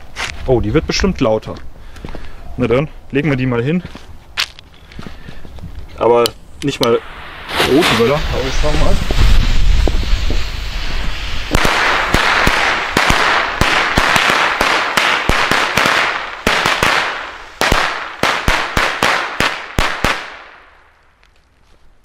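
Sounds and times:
crackling hiss: 0.0s - 21.8s
firecrackers banging: 6.8s - 20.7s.

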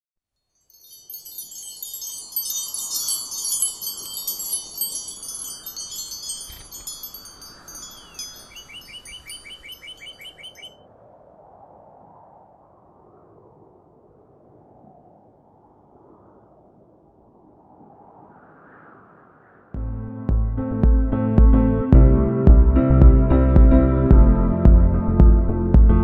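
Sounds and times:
wind chimes ringing: 0.6s - 10.7s
rapid chirps: 0.9s - 10.8s.

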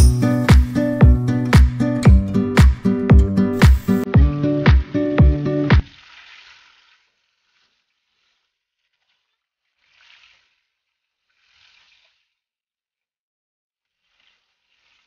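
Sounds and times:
fish sizzling in oil: 5.9s - 9.2s, 14.0s - 15.0s.

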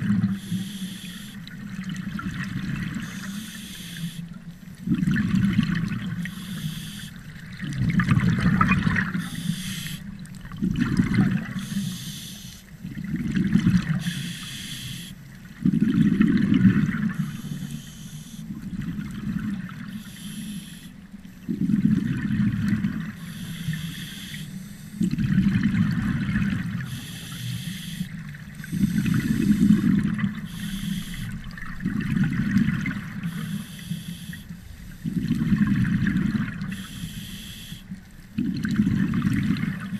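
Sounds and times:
exhaled air bubbling: 0.0s - 39.9s
regulator inhale hiss: 0.3s - 1.5s, 3.0s - 4.4s, 6.2s - 7.2s, 9.1s - 10.1s, 11.5s - 12.7s, 14.0s - 15.2s, 17.1s - 18.5s, 19.8s - 21.0s, 23.2s - 25.1s, 26.8s - 31.5s, 33.1s - 35.4s, 36.7s - 38.0s.

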